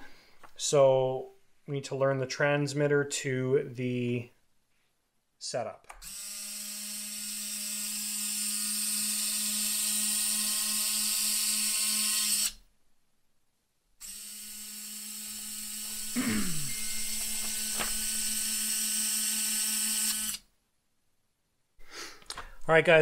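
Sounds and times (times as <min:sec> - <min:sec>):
small motors whining: 0:14.0 - 0:20.4.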